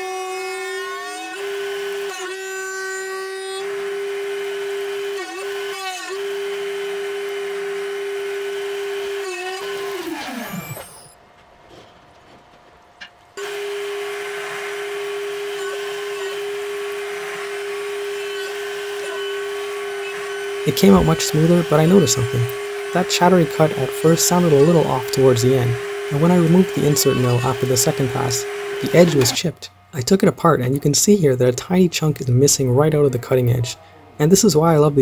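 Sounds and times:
milling spindle whine: 0:00.0 - 0:11.2, 0:13.4 - 0:32.6
hissing metal cutting: 0:13.4 - 0:29.6.

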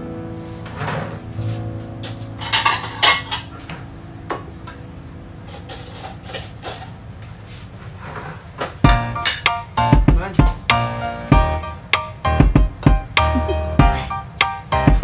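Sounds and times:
plates and cutlery clinking: 0:02.1 - 0:03.7, 0:05.5 - 0:07.0.

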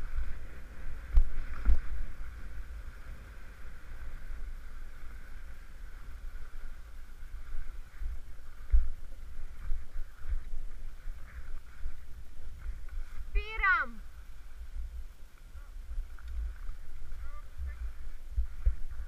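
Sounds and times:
skis swishing on snow: 0:00.0 - 0:13.3, 0:16.0 - 0:19.0
wind buffeting microphone: 0:00.0 - 0:19.0.

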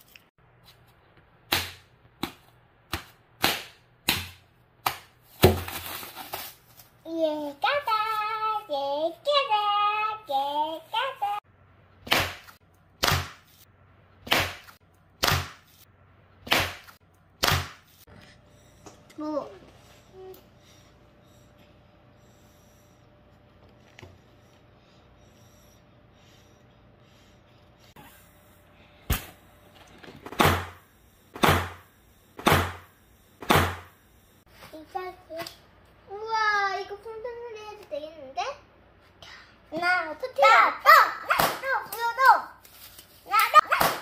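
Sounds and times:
hand slapping plastic on table: 0:01.5 - 0:05.6, 0:12.1 - 0:13.5, 0:14.3 - 0:15.7, 0:16.5 - 0:17.8, 0:43.4 - 0:44.0
plastic film crinkling swishes: 0:42.6 - 0:43.6.

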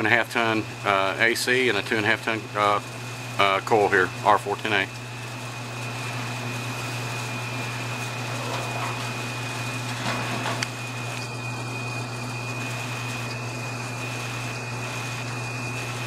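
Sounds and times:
furnace blower humming: 0:00.0 - 0:16.0.

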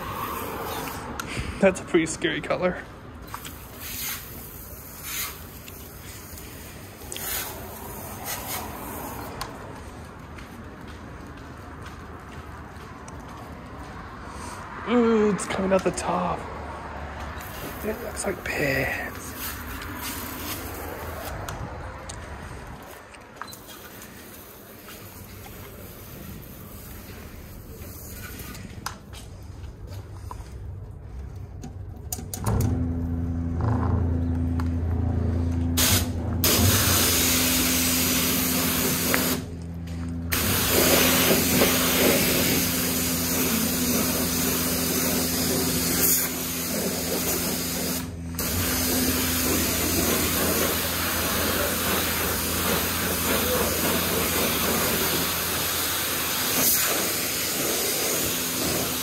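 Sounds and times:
pressure wand spraying water: 0:00.0 - 0:01.1, 0:03.2 - 0:09.4, 0:17.4 - 0:21.4, 0:23.4 - 0:28.6, 0:35.8 - 0:39.5, 0:40.3 - 0:59.0.

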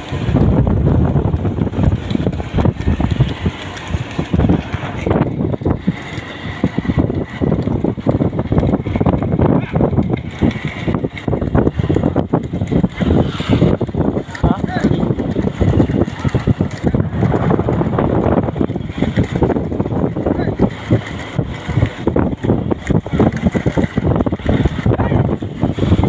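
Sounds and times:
cart rattling on dirt track: 0:00.0 - 0:26.0
wind buffeting microphone: 0:00.0 - 0:26.0.

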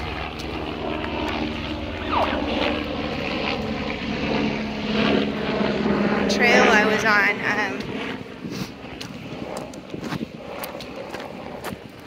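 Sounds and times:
propeller airplane engine drone: 0:00.0 - 0:12.0.

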